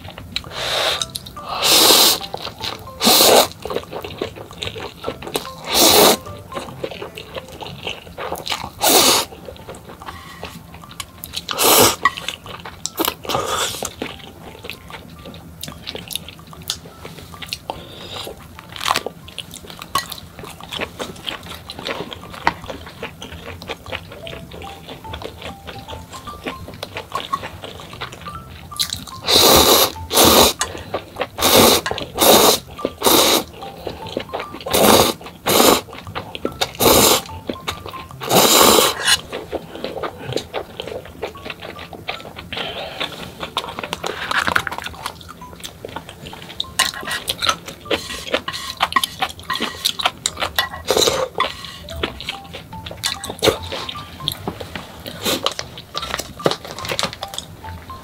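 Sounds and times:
noodles slurped: 0.0 - 9.3, 29.1 - 33.6, 34.7 - 37.3, 38.2 - 41.0
eating sounds: 0.0 - 58.0
soft background music: 0.0 - 58.0.

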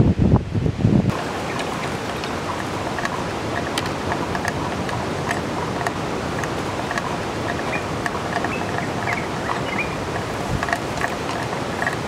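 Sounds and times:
wind gusting on microphone: 0.0 - 12.0
distant surf hiss: 1.1 - 12.0
faint short chirps and ticks: 2.6 - 12.0.

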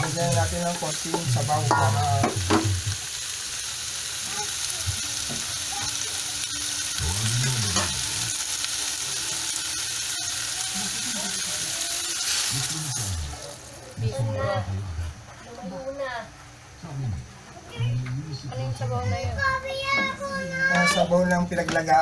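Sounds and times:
meat sizzling in a wok: 0.0 - 15.8
broth pouring into pan: 1.3 - 14.0.

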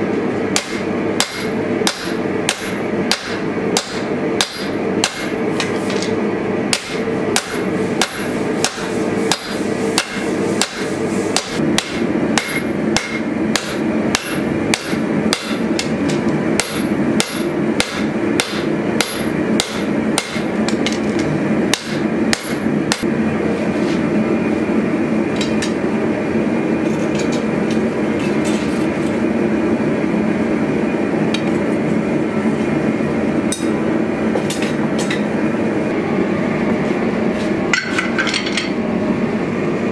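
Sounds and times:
hammer striking metal on anvil: 0.5 - 6.1, 6.7 - 21.0, 21.7 - 23.1, 37.7 - 38.8.

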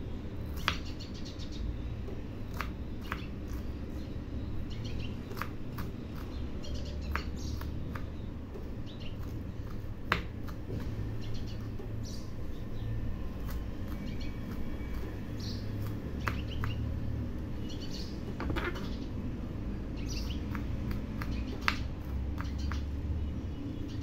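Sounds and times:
low steady hum: 0.0 - 24.0
knife knocking on wooden board: 18.4 - 18.9.

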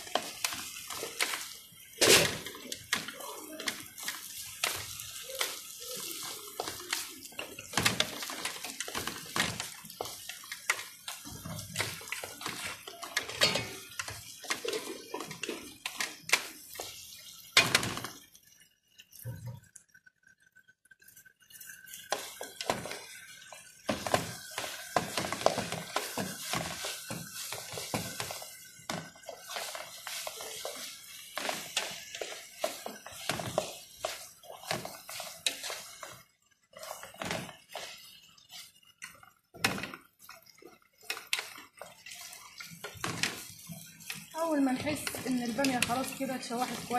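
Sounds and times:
utensil scraping a pan: 22.0 - 36.2, 41.0 - 46.9.

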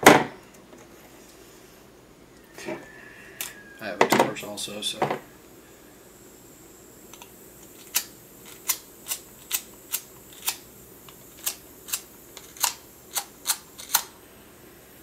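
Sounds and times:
torch igniter clicking: 7.1 - 14.2.

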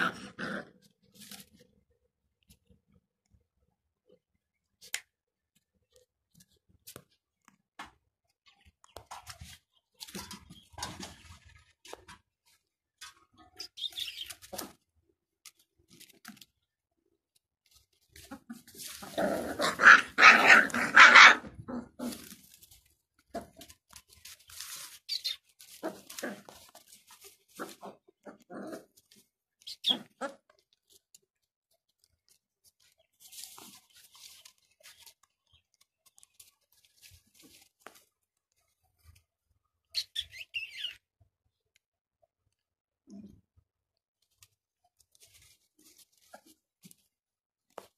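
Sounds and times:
scuffling in dirt and straw: 17.7 - 40.5, 44.2 - 47.9
puppies barking and yelping: 18.3 - 22.3, 29.6 - 30.5
puppies yipping: 19.0 - 21.6, 29.6 - 30.4.

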